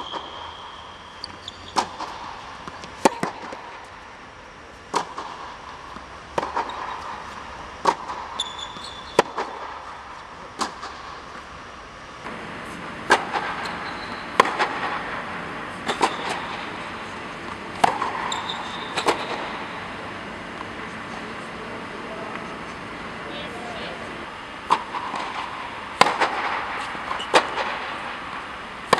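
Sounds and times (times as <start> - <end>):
shoe squeaks on court: 0.0 - 2.0, 8.4 - 9.2, 13.6 - 14.4, 18.2 - 19.3
tennis ball bouncing: 0.0 - 3.9, 4.9 - 11.5, 12.2 - 28.9
racket hitting tennis ball: 1.2 - 3.9, 4.9 - 11.5, 12.2 - 28.9.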